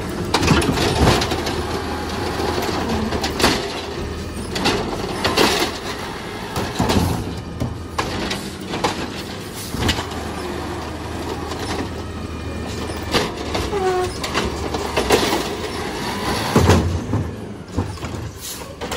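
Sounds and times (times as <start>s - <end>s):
knocks and clatter of trash cart: 0.0s - 10.3s, 12.8s - 18.9s
diesel engine running: 0.0s - 18.9s
short squeak: 13.7s - 14.4s.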